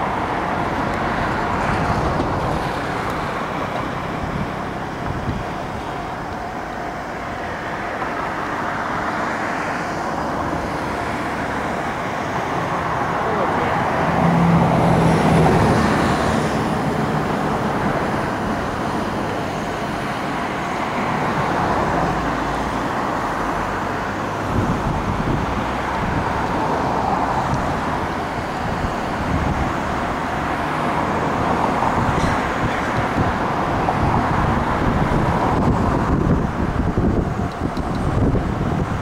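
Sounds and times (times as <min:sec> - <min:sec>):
rumble of distant vehicles: 0:00.0 - 0:39.0.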